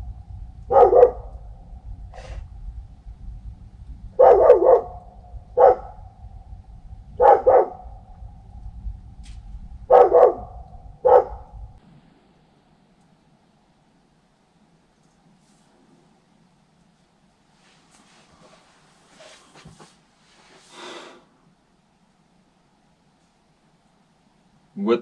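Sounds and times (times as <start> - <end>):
low steady hum: 0.0 - 20.6, 21.3 - 25.0
dog barking: 0.7 - 1.4, 4.2 - 6.1, 7.2 - 8.0, 9.8 - 11.6.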